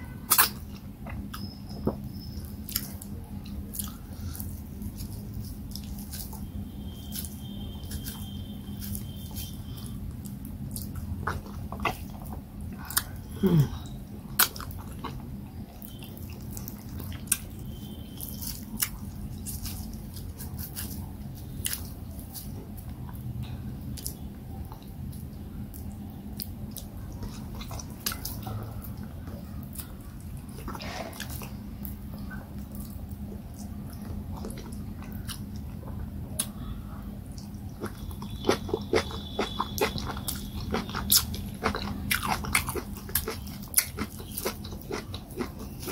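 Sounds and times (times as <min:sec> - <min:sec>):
low steady hum: 0:00.0 - 0:45.9
wet chewing with lip smacks: 0:23.9 - 0:36.6, 0:37.3 - 0:45.9.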